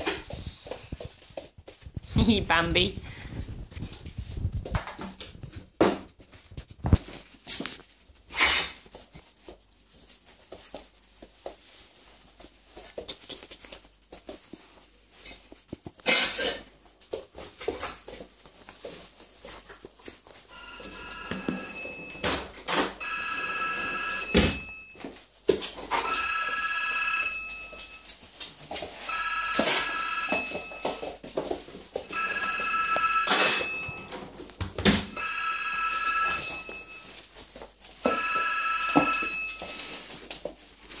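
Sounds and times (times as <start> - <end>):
phone ringing: 20.5 - 25.0, 25.9 - 28.2, 29.0 - 31.2, 32.0 - 34.4, 35.0 - 37.2, 38.0 - 40.2.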